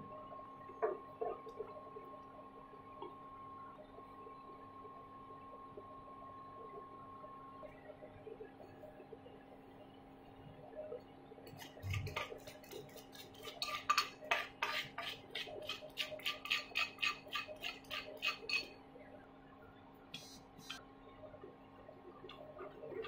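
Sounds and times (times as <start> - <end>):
faint steady hum: 0.0 - 23.0
spatula scraping a pan: 11.5 - 18.8.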